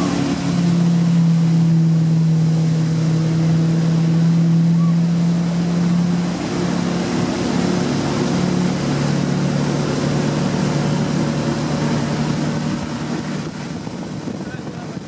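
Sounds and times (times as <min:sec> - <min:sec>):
motorboat engine humming: 0:00.0 - 0:15.0
rushing water from wake: 0:00.0 - 0:15.0
wind: 0:00.0 - 0:15.0.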